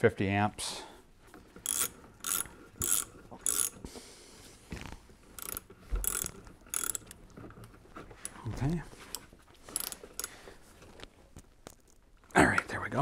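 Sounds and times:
hand ratchet clicking: 0:01.6 - 0:03.8, 0:05.4 - 0:07.2, 0:09.0 - 0:10.4.

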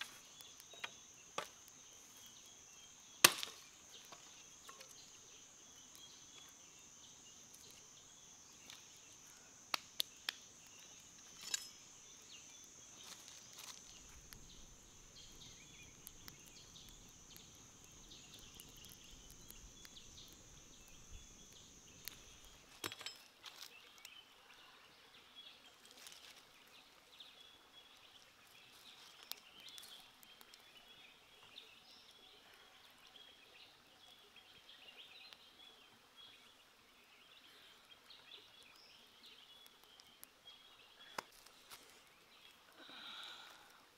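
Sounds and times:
insect drone: 0:00.0 - 0:23.0, 0:42.7 - 0:43.9
sharp cracks: 0:03.2 - 0:03.7.

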